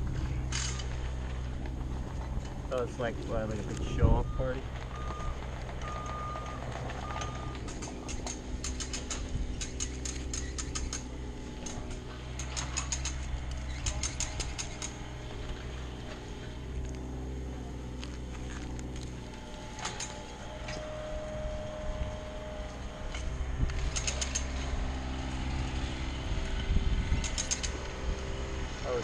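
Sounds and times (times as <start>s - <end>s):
engine idling: 0.0s - 29.0s
rapid light metallic clicking: 4.8s - 15.1s, 27.1s - 27.9s.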